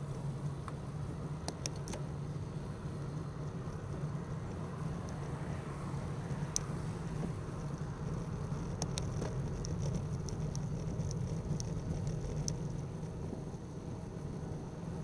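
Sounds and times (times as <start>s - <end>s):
wind and road rumble: 0.0s - 15.0s
faint high clicks: 7.6s - 13.2s.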